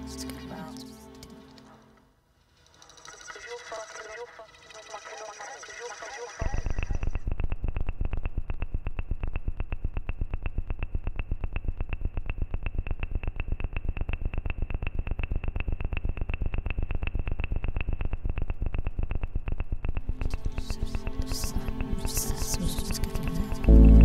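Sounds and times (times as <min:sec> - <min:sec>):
electronic music with pulsing beat: 0:20.2 - 0:24.0.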